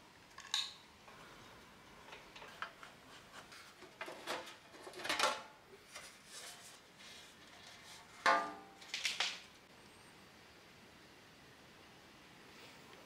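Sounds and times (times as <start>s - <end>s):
metal cover scraping and clinking: 3.4s - 5.5s.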